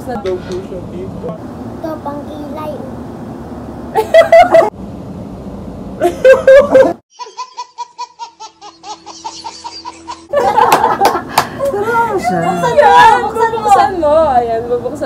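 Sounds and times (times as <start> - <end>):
loud laughter: 4.0 - 4.7, 6.0 - 12.9
baby giggling: 7.2 - 10.4.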